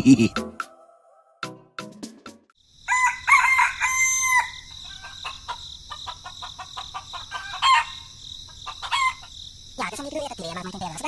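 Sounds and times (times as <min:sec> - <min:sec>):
rooster crowing: 0:00.3 - 0:01.5, 0:02.8 - 0:09.3.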